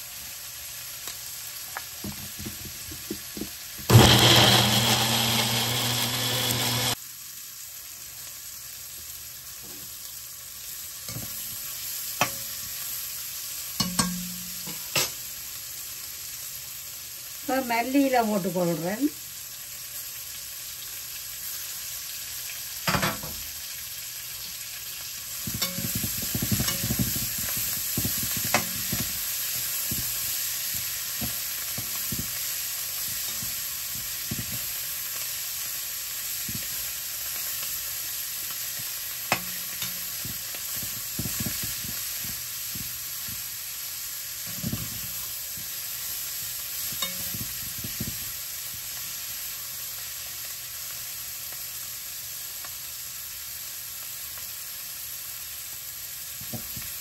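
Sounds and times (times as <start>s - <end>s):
food sizzling in oil: 0.0s - 57.0s
utensil scraping a pan: 25.5s - 30.4s.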